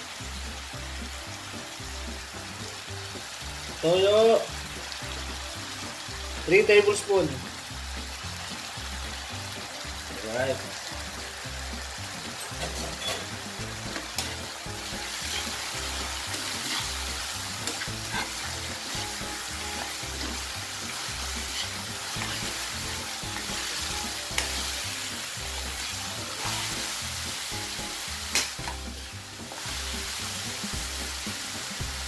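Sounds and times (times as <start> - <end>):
meat sizzling in a wok: 0.0 - 32.0
metal ladle stirring: 12.6 - 26.8.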